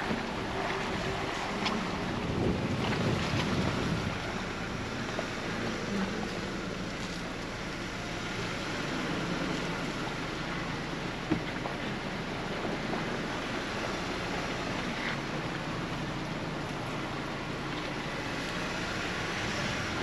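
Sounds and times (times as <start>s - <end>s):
wind on microphone: 0.0s - 6.3s
engine and drivetrain rumble: 0.0s - 20.0s.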